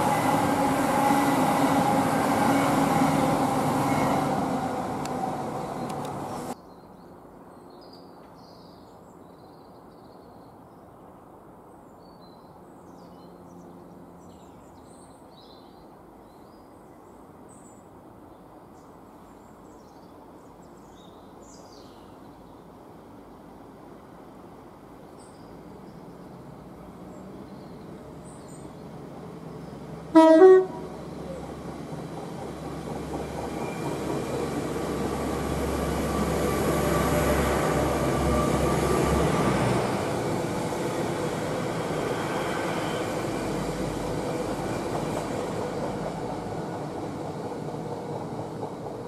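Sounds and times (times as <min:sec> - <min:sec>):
train wheel and rail rumble: 0:00.0 - 0:06.6, 0:17.2 - 0:49.0
train two-tone horn blast: 0:30.1 - 0:31.0.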